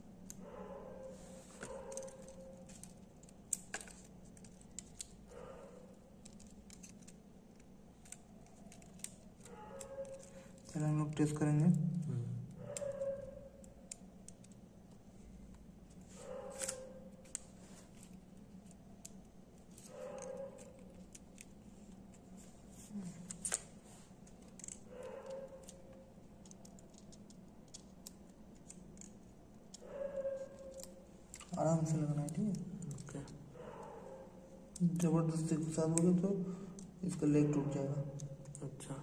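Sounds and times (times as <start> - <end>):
small clicks and scrapes of tool: 1.4 - 10.8, 15.9 - 33.2.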